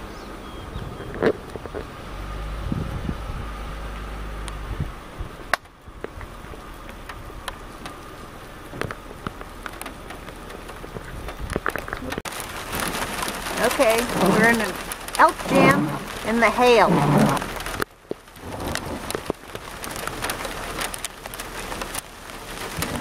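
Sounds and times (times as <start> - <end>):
car engine idling: 1.5 - 23.0
hail ticking on a car: 5.5 - 23.0.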